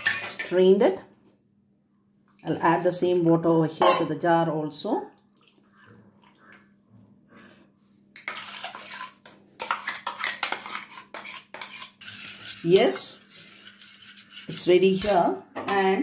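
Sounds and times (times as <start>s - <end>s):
liquid puree pouring into pot: 5.2s - 6.8s.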